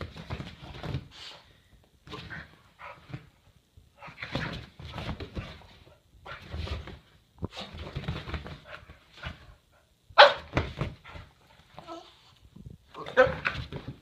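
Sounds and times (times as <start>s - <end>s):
dog barking: 10.2s - 10.5s.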